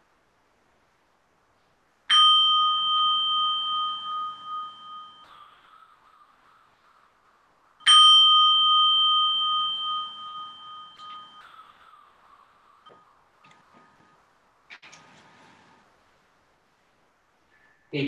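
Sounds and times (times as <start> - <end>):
bell ringing: 2.1 - 6.3, 7.8 - 14.2.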